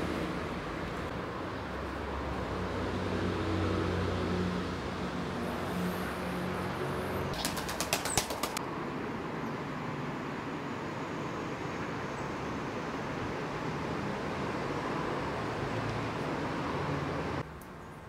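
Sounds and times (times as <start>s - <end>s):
traffic rumble: 0.0s - 18.0s
sharp claps or clicks: 7.4s - 8.6s.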